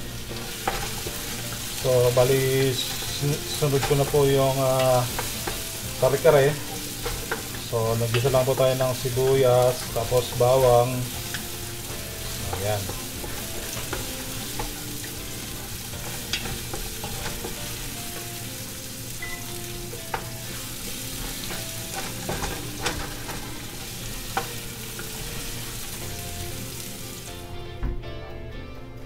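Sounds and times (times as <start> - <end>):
onion and garlic sizzling: 0.0 - 27.8
wooden spoon scraping pot: 0.4 - 18.3.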